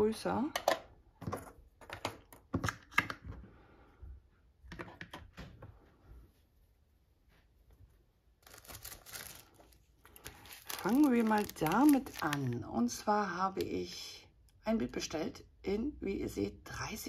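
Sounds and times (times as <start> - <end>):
plastic tools clicking and knocking: 0.5 - 3.4.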